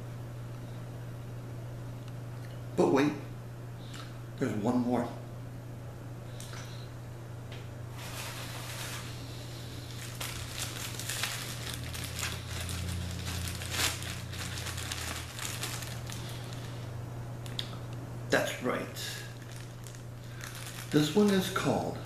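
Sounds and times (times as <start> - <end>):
plastic bag crinkling: 8.0 - 9.2, 9.8 - 16.8, 19.2 - 21.7.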